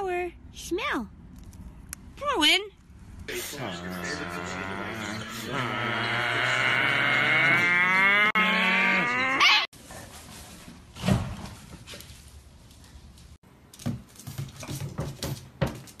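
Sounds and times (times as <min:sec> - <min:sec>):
dog howling: 0:03.9 - 0:09.7.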